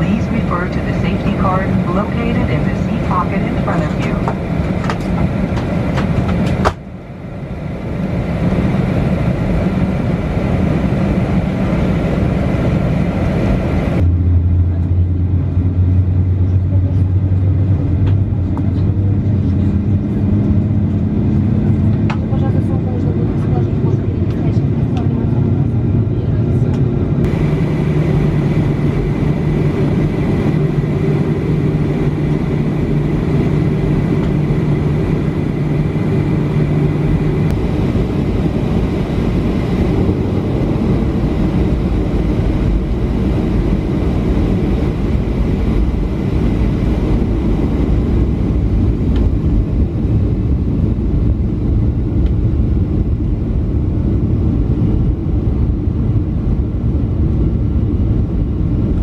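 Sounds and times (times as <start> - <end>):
airplane cabin engine noise: 0.0 - 59.0
low hum: 0.0 - 59.0.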